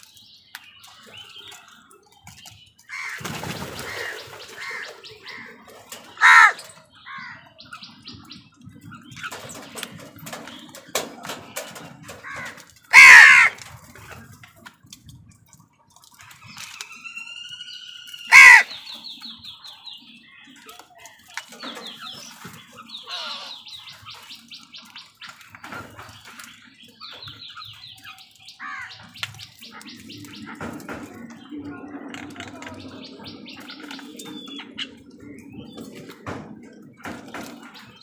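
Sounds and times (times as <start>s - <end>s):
crows cawing harshly: 2.9s - 3.3s, 3.9s - 5.6s, 6.2s - 7.4s, 12.2s - 13.6s, 18.3s - 18.8s, 28.6s - 29.0s
rapid high bird chattering: 18.2s - 18.8s.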